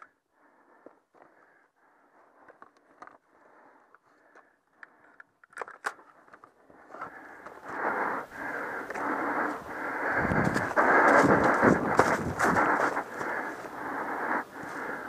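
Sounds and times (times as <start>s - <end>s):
sharp clicks: 4.3s - 7.6s.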